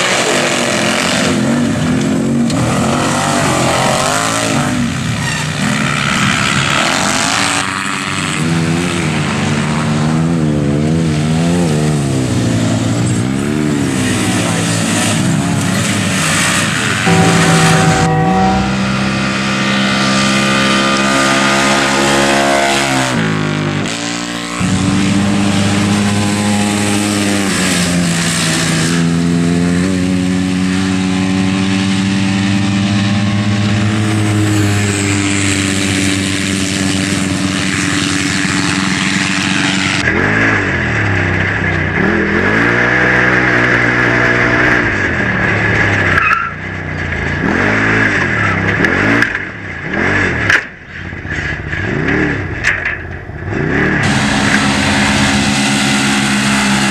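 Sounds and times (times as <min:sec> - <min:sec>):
engines running at high revs: 0:00.0 - 0:46.2, 0:47.0 - 0:50.7, 0:51.4 - 0:56.9
engine revving up and down: 0:02.5 - 0:41.4, 0:42.0 - 0:46.1, 0:53.4 - 0:56.9
steady high whine: 0:16.9 - 0:21.4, 0:54.0 - 0:56.9.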